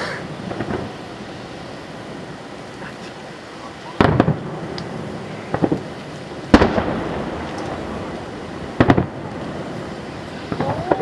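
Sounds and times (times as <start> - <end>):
firework shells bursting: 0.0 - 1.2, 3.9 - 11.0.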